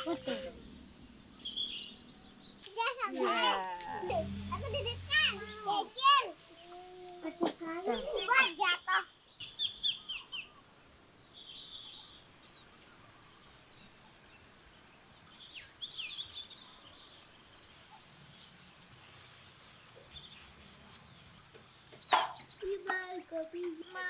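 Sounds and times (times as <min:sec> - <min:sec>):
bird chirps: 0:00.0 - 0:03.0, 0:08.0 - 0:14.4, 0:19.9 - 0:22.8
insect trill: 0:00.0 - 0:06.7, 0:07.6 - 0:18.8.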